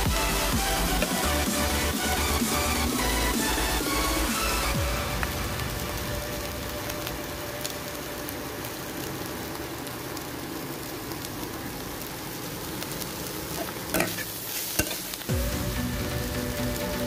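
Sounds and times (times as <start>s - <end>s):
egg sizzling in oil: 4.8s - 16.9s.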